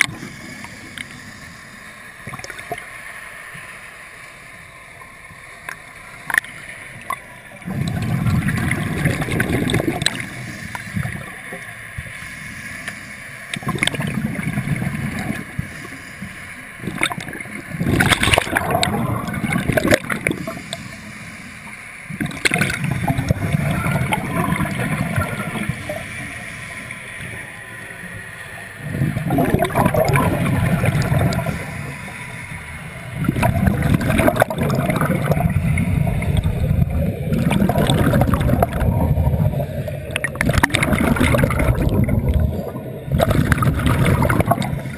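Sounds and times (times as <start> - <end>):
diver exhaling bubbles underwater: 7.6 - 11.3, 13.6 - 15.4, 16.8 - 20.6, 22.2 - 26.0, 28.8 - 31.7, 33.2 - 44.9.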